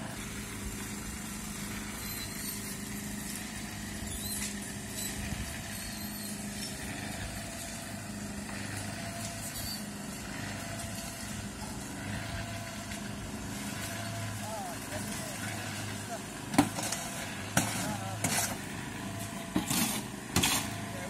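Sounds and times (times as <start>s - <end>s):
motor humming: 0.0s - 21.0s.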